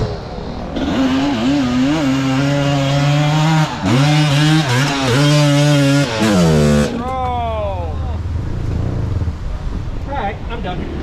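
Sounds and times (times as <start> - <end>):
engine revving hard: 0.8 - 7.0.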